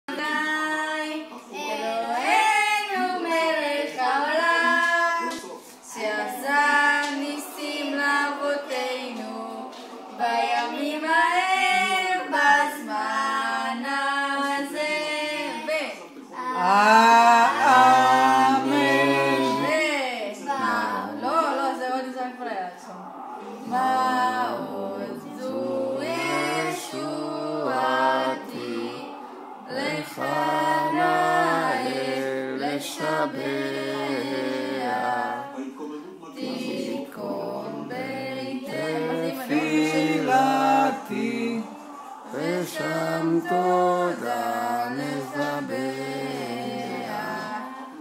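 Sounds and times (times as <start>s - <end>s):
children singing: 16.4s - 19.8s, 23.4s - 35.6s, 36.4s - 48.0s.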